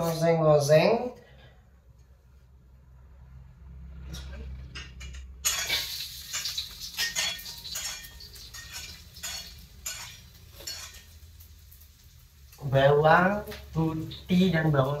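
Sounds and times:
metal spatula scraping pan: 4.2s - 11.3s
garlic sizzling in hot oil: 5.5s - 15.0s.

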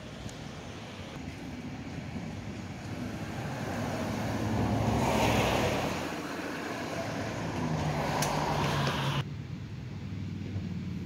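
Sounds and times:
vehicle passing: 1.1s - 9.2s.

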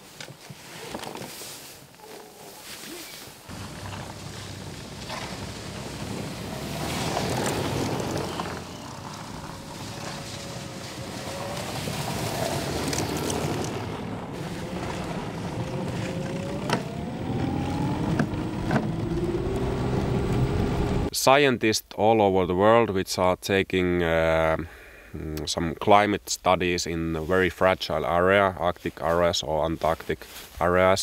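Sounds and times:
snowmobile track and snow noise: 0.1s - 21.1s
electric motor whine: 6.0s - 21.1s.

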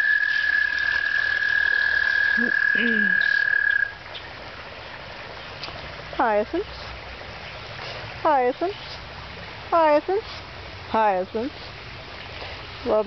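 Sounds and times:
toad trilling: 0.0s - 4.0s.

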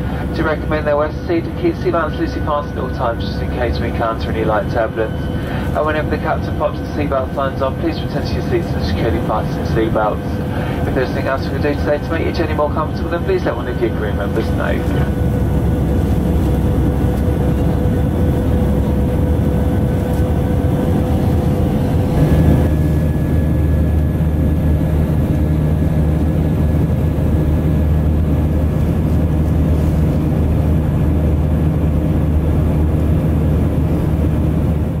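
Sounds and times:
jet engine cabin drone: 0.0s - 35.0s.

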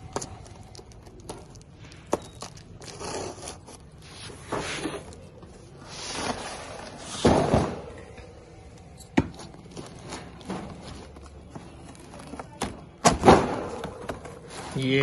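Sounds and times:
cardboard scraping and rustling: 2.5s - 7.7s.

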